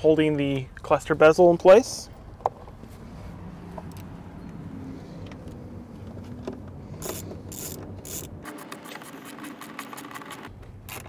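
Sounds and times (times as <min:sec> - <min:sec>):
hand ratchet clicking: 0:07.0 - 0:11.0.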